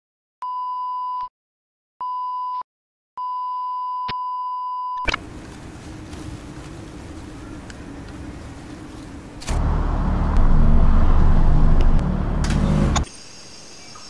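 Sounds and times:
terminal hall background hum: 5.1 - 10.7.

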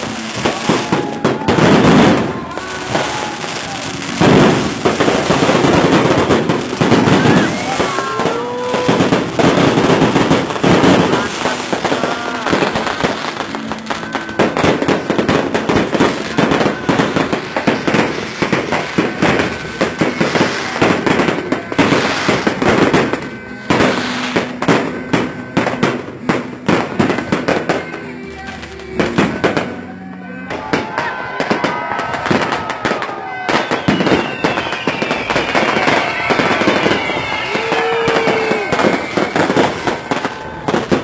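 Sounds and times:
fireworks bangs and crackles: 0.0 - 41.0.

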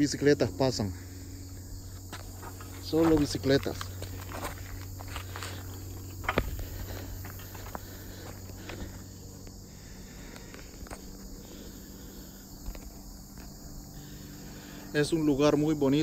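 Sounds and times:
insects chirring: 0.0 - 16.0
footsteps on asphalt: 1.4 - 14.1.

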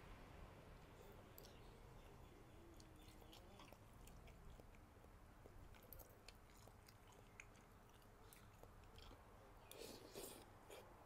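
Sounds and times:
close chewing: 1.0 - 11.0.

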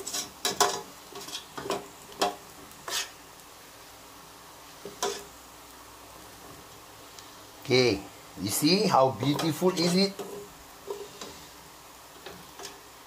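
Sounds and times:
metal spoon scraping a pot: 0.0 - 3.2.

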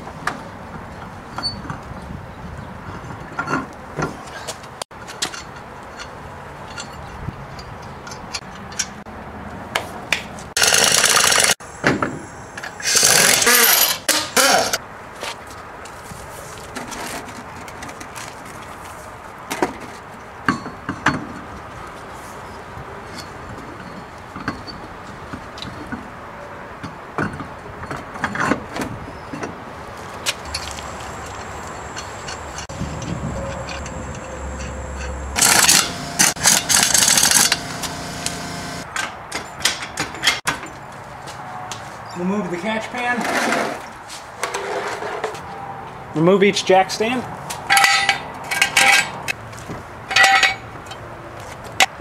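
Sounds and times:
sharp ratchet clicks: 10.6 - 11.6, 33.7 - 37.6
metallic rattling and whirring: 30.4 - 38.8.

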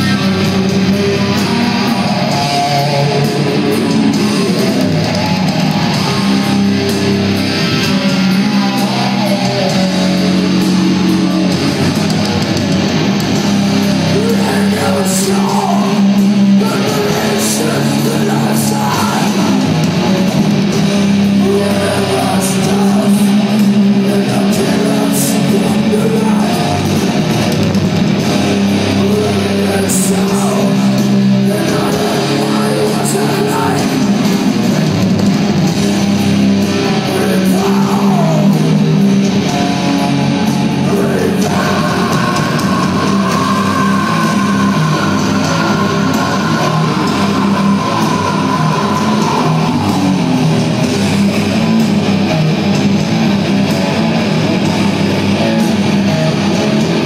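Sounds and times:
heavy metal band playing live: 0.0 - 57.0.

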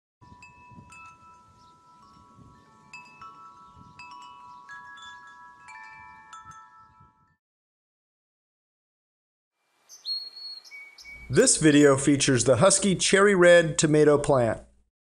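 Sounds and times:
chimes ringing: 0.3 - 7.4, 10.9 - 12.1.

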